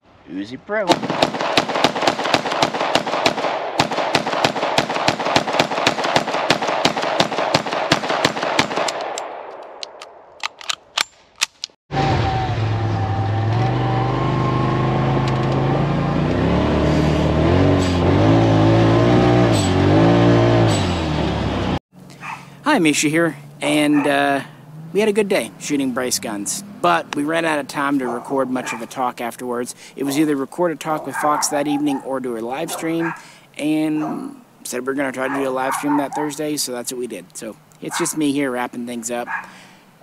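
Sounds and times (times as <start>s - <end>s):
pistol shots fired rapidly: 0.9s - 9.1s.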